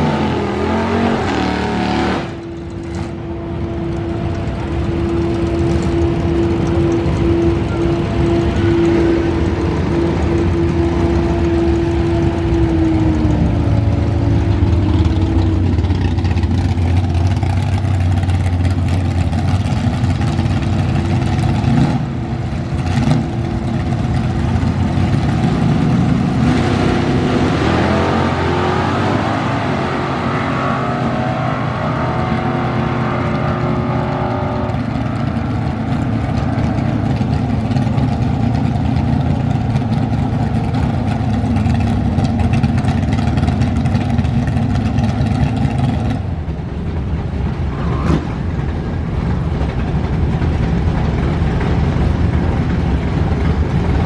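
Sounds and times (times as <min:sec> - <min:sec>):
race car engines at full throttle: 0:00.0 - 0:54.0.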